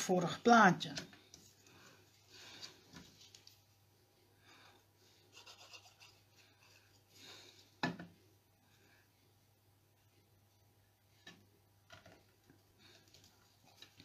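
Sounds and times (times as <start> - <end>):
paper and card rustling: 1.1 - 3.7.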